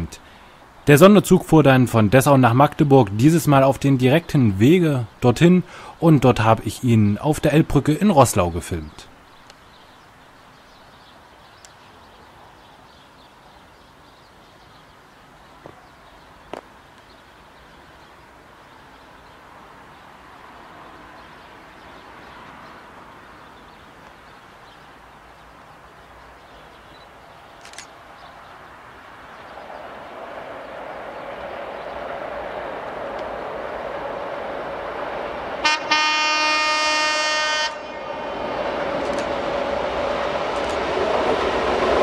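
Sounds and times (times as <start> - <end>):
distant diesel train approaching: 0.0 - 14.7, 17.3 - 42.0
birds: 0.0 - 41.5
short clicks: 27.6 - 28.0, 39.0 - 39.4, 40.5 - 40.9.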